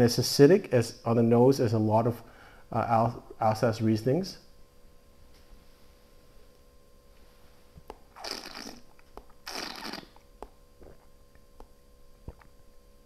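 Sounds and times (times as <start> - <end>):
faint mouth clicks: 7.9 - 11.0.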